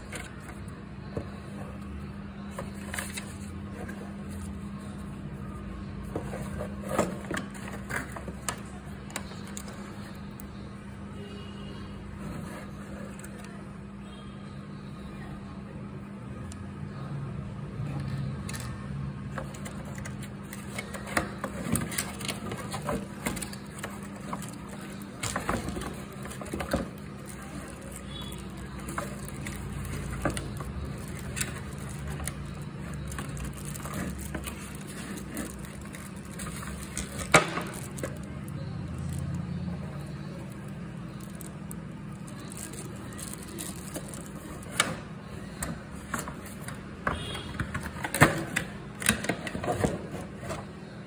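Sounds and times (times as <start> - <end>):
cardboard box and plastic rustling: 2.4 - 10.5, 19.3 - 50.8.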